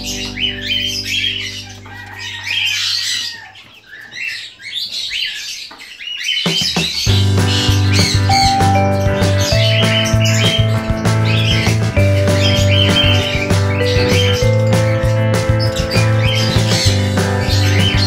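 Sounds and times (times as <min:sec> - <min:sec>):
background music: 0:00.0 - 0:02.5, 0:07.0 - 0:18.0
chicks peeping: 0:00.0 - 0:18.0.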